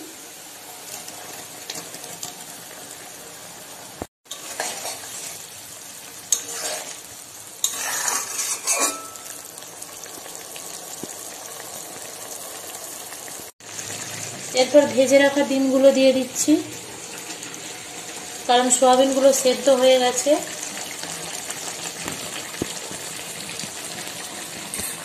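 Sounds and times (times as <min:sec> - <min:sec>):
gravy bubbling and sizzling: 0:00.0 - 0:25.0
spoon scraping pan: 0:04.3 - 0:05.5, 0:06.3 - 0:09.4.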